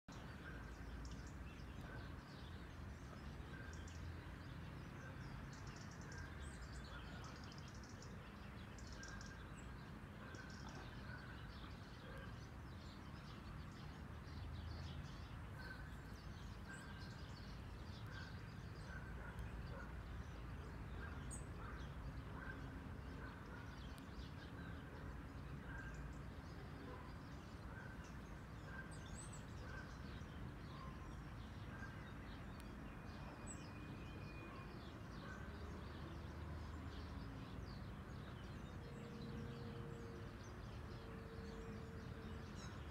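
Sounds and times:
birds chirping: 0:05.5 - 0:37.1.

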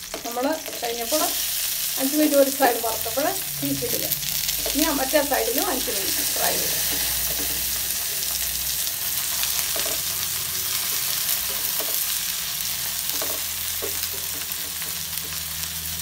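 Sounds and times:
oil sizzling in a frying pan: 0:00.0 - 0:16.0
spatula scraping a pan: 0:06.0 - 0:15.4.

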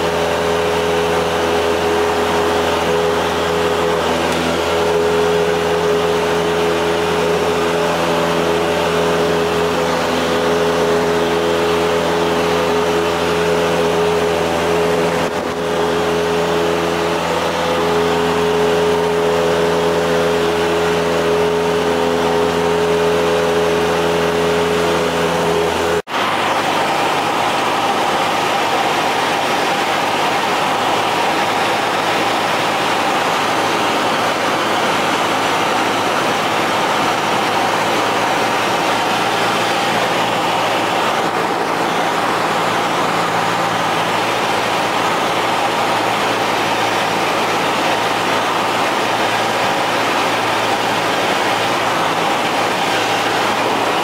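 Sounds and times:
propeller plane engine droning: 0:00.0 - 0:54.0
rushing airflow: 0:00.0 - 0:54.0.

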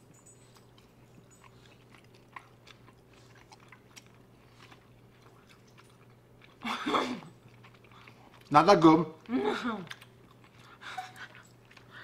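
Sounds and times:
chewing mouth clicks: 0:00.0 - 0:06.6, 0:07.2 - 0:08.5
low steady hum: 0:00.0 - 0:12.0.

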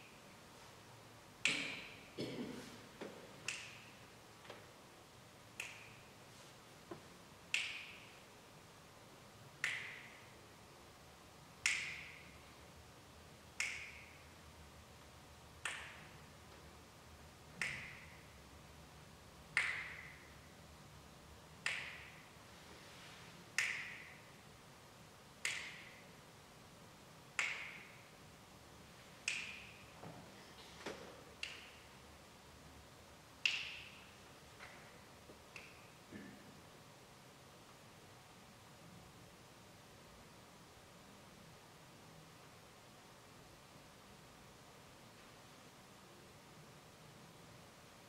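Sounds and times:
sharp percussion clicks: 0:03.4 - 0:04.1, 0:05.5 - 0:06.2, 0:13.5 - 0:14.4, 0:25.4 - 0:26.1, 0:29.2 - 0:30.0, 0:31.4 - 0:32.0, 0:33.4 - 0:34.8.

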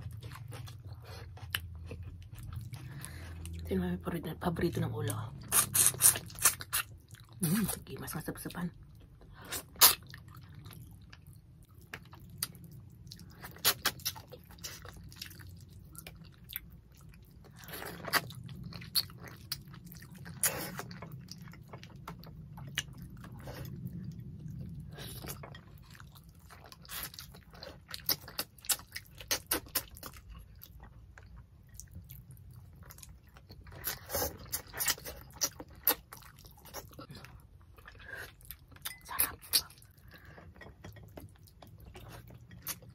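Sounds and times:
people chewing: 0:00.0 - 0:03.6.

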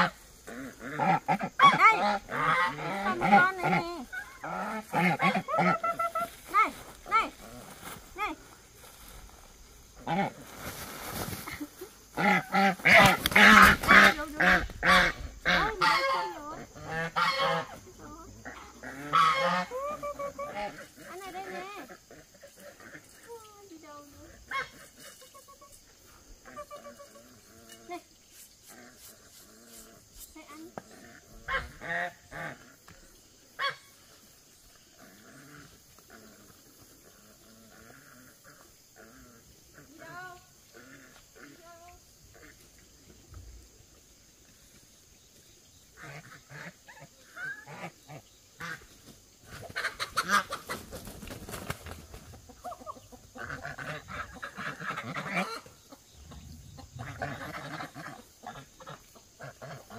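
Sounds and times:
geese honking: 0:00.0 - 0:06.7, 0:12.2 - 0:17.9, 0:18.5 - 0:22.0.

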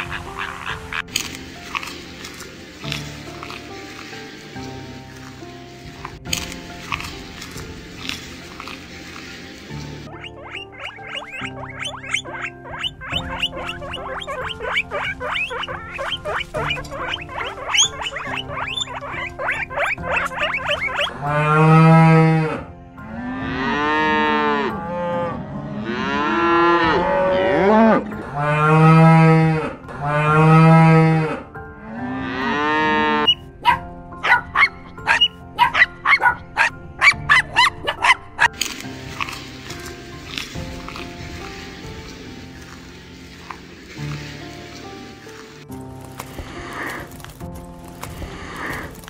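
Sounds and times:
background music: 0:00.0 - 0:49.0
guinea pig squeaking: 0:10.0 - 0:21.4, 0:33.2 - 0:38.6
cattle mooing: 0:10.6 - 0:33.4.

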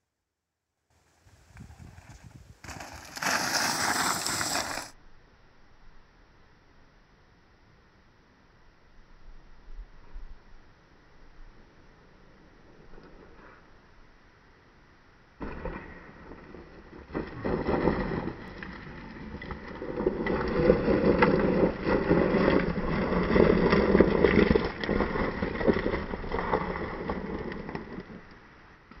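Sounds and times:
bike tyres crunching on gravel: 0:01.1 - 0:05.0, 0:15.4 - 0:28.5.

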